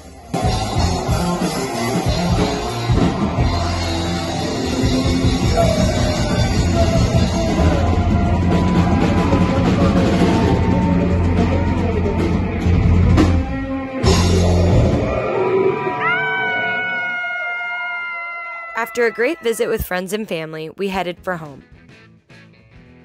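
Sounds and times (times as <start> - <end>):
rock music with drums: 0.0 - 15.4, 21.1 - 23.0.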